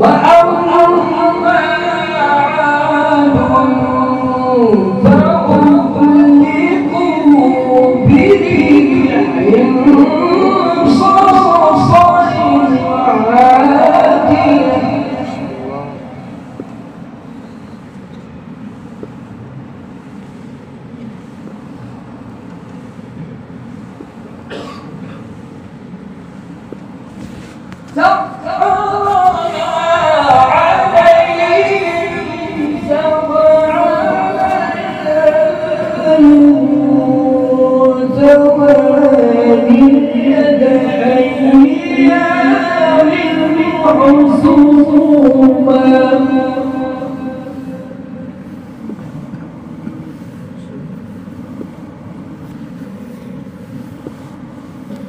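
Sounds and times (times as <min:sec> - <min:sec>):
man reciting melodically: 0:00.0 - 0:16.2, 0:28.0 - 0:48.4.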